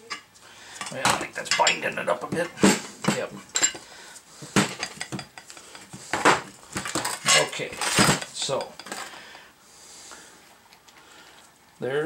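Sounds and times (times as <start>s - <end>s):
metal parts clanking: 0.9s - 3.8s, 6.8s - 9.1s.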